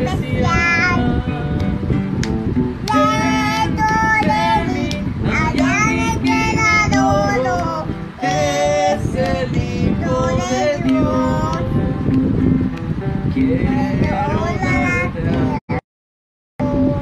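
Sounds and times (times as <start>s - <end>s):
girl singing: 0.0s - 1.7s, 2.9s - 11.8s, 13.6s - 15.8s, 16.6s - 17.0s
strummed acoustic guitar: 0.0s - 15.6s.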